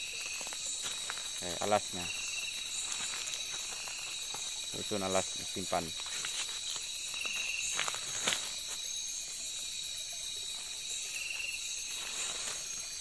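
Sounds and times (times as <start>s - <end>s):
crickets and insects chirping: 0.0s - 13.0s.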